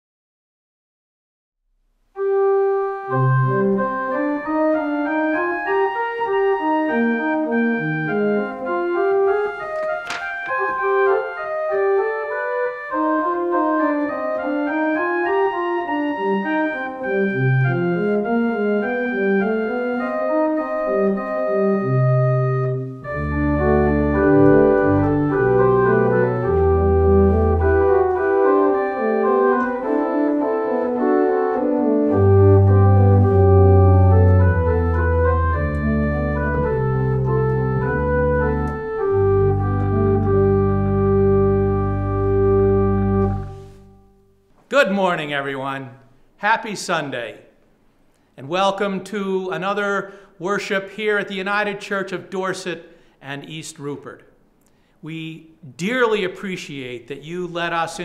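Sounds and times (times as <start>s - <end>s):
deep organ bass notes: 2.2s - 44.4s
organ playing held chords: 2.2s - 45.7s.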